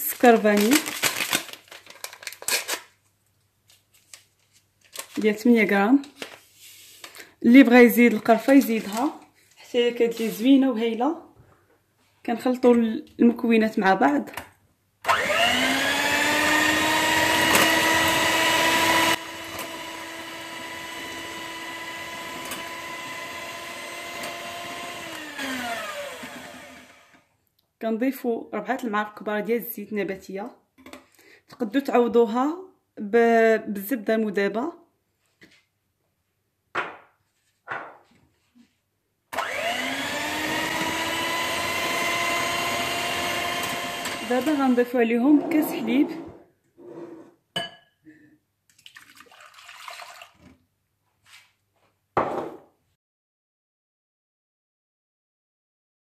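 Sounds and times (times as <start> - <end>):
electric hand mixer whining: 15.1 - 27.2, 39.4 - 44.9.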